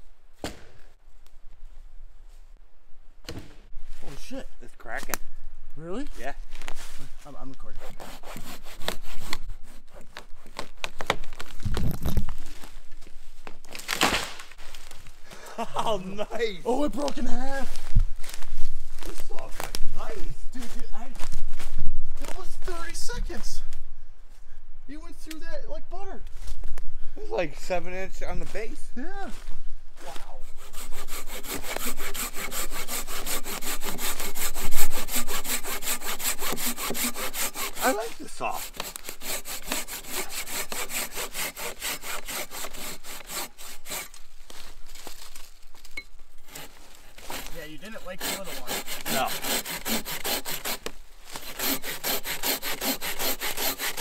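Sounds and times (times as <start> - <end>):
pull saw cutting log: 7.8 - 10.7, 30.4 - 44.2, 46.4 - 54.0
tree trunk cracking and splintering: 13.4 - 15.0.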